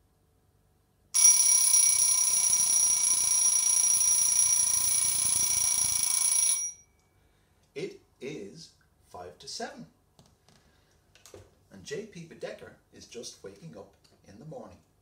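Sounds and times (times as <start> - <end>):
alarm clock bell ringing: 1.2 - 6.9.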